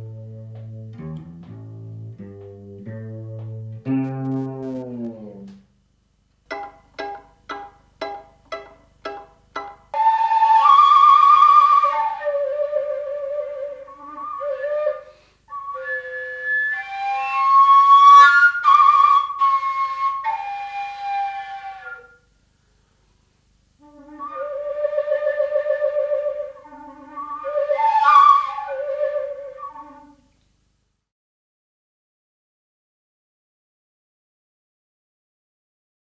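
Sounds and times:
fretless bass guitar notes: 0:00.0 - 0:05.7
overtone flute breathy melody: 0:10.0 - 0:22.3, 0:23.8 - 0:30.3.

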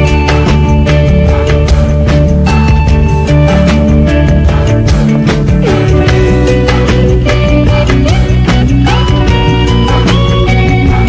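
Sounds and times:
electric guitar: 0:00.0 - 0:11.0
steady drum beat: 0:00.0 - 0:11.0.

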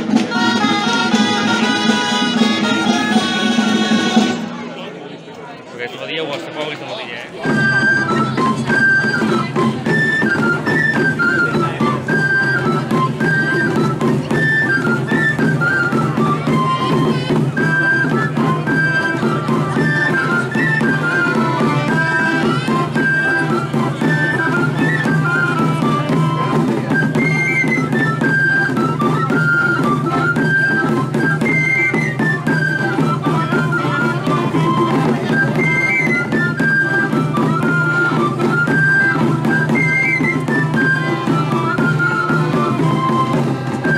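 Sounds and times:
drumming: 0:00.0 - 0:04.8, 0:07.2 - 0:43.9
high wind instrument melody: 0:00.0 - 0:04.8, 0:07.4 - 0:43.9.

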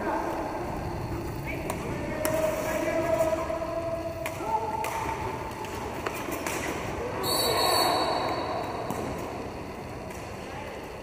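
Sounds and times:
players' voices: 0:00.0 - 0:11.0
skates rolling on rink floor: 0:00.0 - 0:11.0
referee's whistle: 0:07.2 - 0:08.6.

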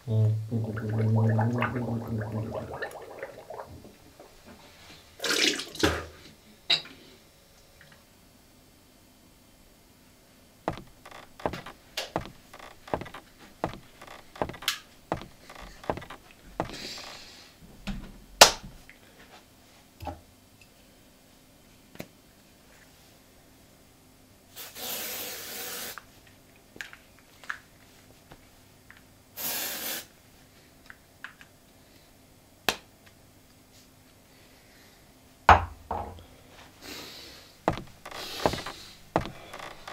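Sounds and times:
aerosol spray hiss: 0:24.6 - 0:26.0, 0:29.4 - 0:30.1.

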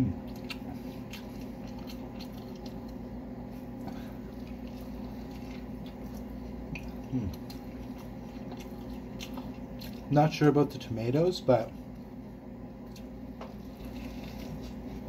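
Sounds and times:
person chewing food: 0:00.0 - 0:10.2, 0:11.8 - 0:15.0
steady low hum: 0:00.0 - 0:15.0
person humming: 0:07.1 - 0:07.4.

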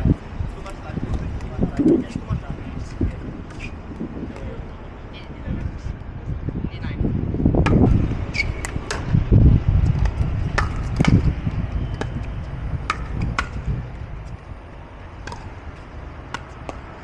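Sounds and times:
paddles hitting plastic ball: 0:10.0 - 0:11.3.

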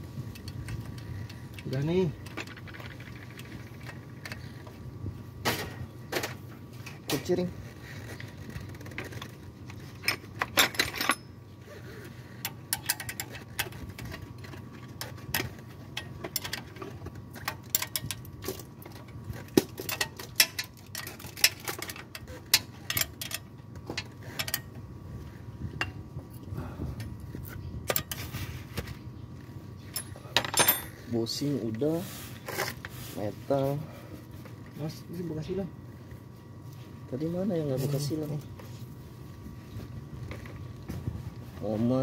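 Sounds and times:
steady low hum: 0:00.0 - 0:42.0
spanner clicking on bolts: 0:11.9 - 0:24.8.

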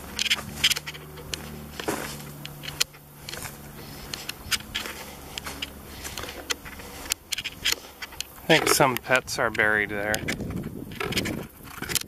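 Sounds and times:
footsteps crunching through leaves: 0:00.0 - 0:08.9
camera handling rustle: 0:00.1 - 0:09.0, 0:10.1 - 0:12.0.

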